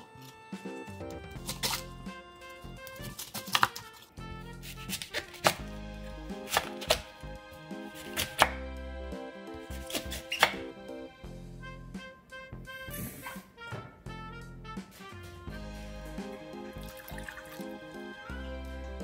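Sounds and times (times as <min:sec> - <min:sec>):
light background music: 0:00.0 - 0:19.0
knife chopping on wooden board: 0:01.2 - 0:01.8, 0:02.8 - 0:03.8, 0:04.7 - 0:05.7, 0:06.4 - 0:07.1, 0:07.9 - 0:08.6, 0:09.7 - 0:10.6.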